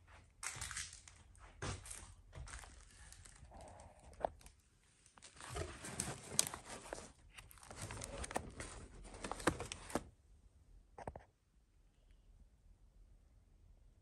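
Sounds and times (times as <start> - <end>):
magazine pages rustling: 1.8 - 10.1.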